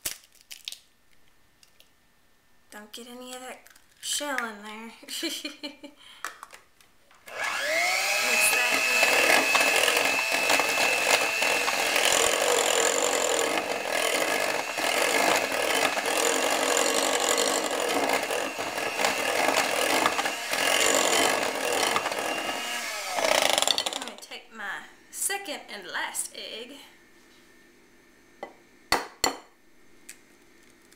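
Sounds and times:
electric hand mixer whining: 7.2s - 24.2s.

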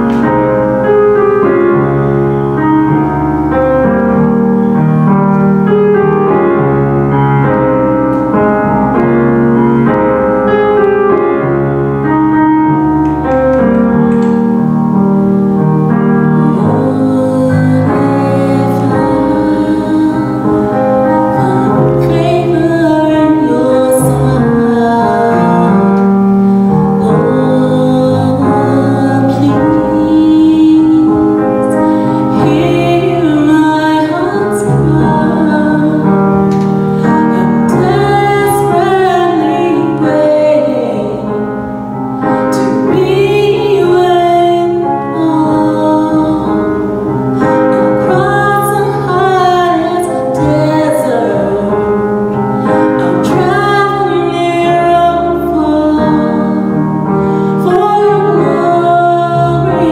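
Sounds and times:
keyboard chords: 0.0s - 59.9s
women singing gospel song: 16.4s - 25.8s, 27.0s - 36.1s, 37.4s - 41.2s, 57.6s - 59.9s.

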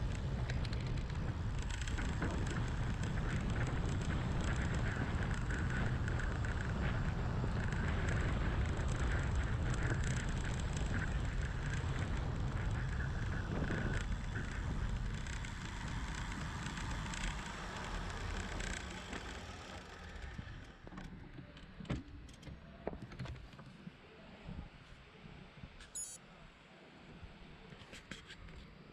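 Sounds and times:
wind rushing over camera: 0.0s - 19.1s
faint road noise: 0.0s - 28.9s
brief high squeak: 25.8s - 26.2s.

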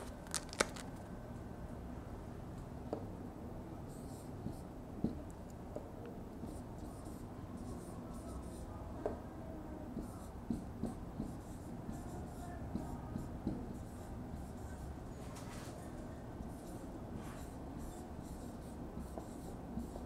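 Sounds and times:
marker tapping on whiteboard: 4.4s - 5.2s, 9.0s - 9.2s, 9.9s - 12.0s, 12.7s - 13.8s, 19.0s - 20.0s
marker squeaking on whiteboard: 16.5s - 20.0s.

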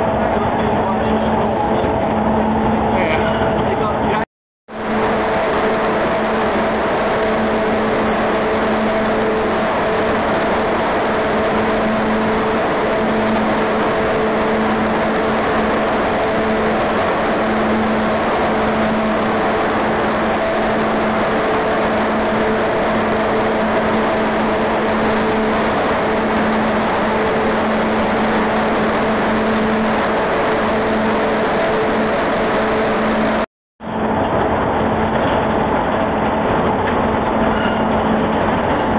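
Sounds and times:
constant low hum: 0.0s - 38.9s
machinery rushing noise: 0.0s - 38.9s.

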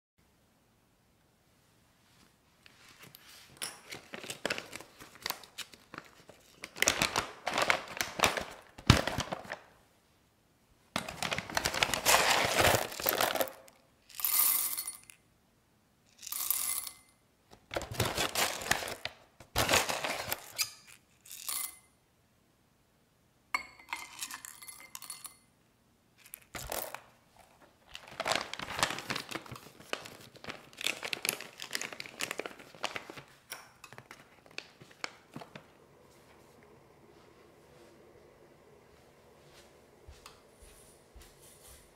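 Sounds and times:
paper bag crinkling: 3.8s - 9.7s, 11.0s - 13.7s, 17.7s - 20.6s, 26.4s - 35.8s
coffee beans poured into glass: 12.8s - 15.2s, 16.2s - 17.0s, 23.9s - 25.4s.

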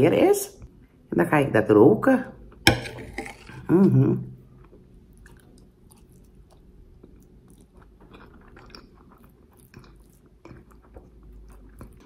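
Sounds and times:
person chewing food: 2.9s - 3.7s, 4.4s - 12.0s.

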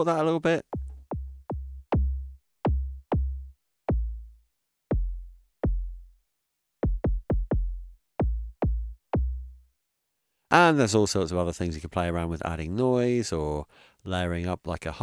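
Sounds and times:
synthesized kick drum hits: 0.7s - 4.3s, 4.9s - 6.1s, 6.8s - 9.6s.

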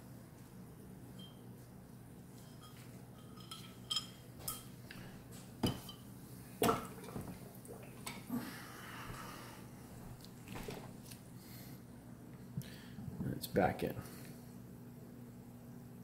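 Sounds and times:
metal parts clinking and knocking: 3.2s - 4.7s.

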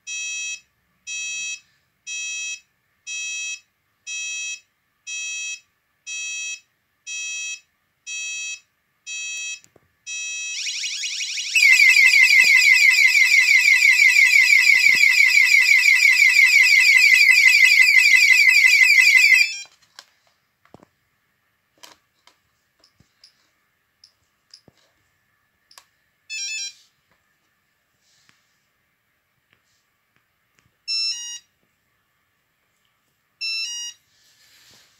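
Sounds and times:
pulsed warning beep: 9.1s - 19.5s
sweeping alarm tone: 10.1s - 19.6s.

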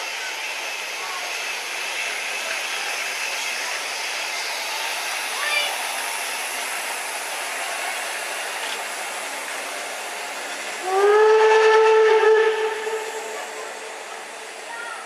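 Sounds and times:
railway rushing noise: 0.0s - 15.0s
train horn blast: 10.8s - 13.4s.

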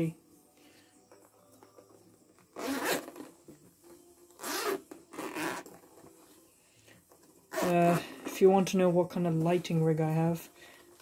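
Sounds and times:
zipper rasping open: 2.5s - 3.4s, 4.4s - 6.1s, 7.5s - 8.3s.

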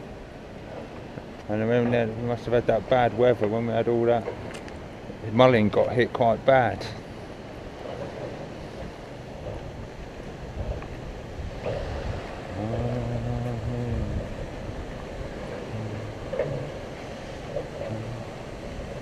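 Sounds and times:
water lapping against stone wall: 0.0s - 19.0s
wind on microphone: 7.7s - 19.0s.

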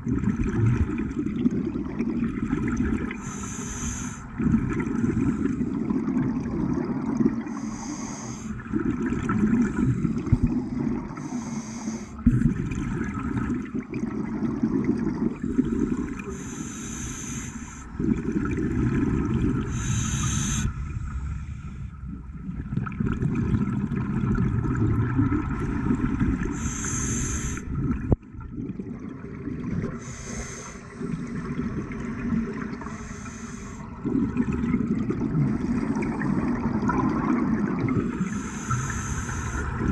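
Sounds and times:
gurgling exhaled bubbles: 0.0s - 39.9s
regulator inhalation hiss: 3.2s - 4.3s, 7.5s - 8.6s, 11.2s - 12.2s, 16.3s - 17.9s, 19.7s - 21.8s, 26.5s - 27.7s, 30.0s - 30.9s, 32.9s - 33.9s, 38.3s - 39.8s.

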